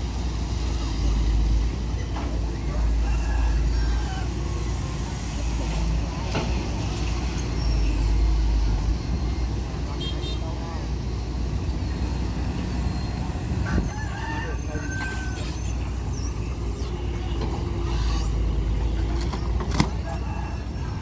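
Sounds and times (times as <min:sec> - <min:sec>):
excavator diesel engine rumbling: 0:00.0 - 0:21.0.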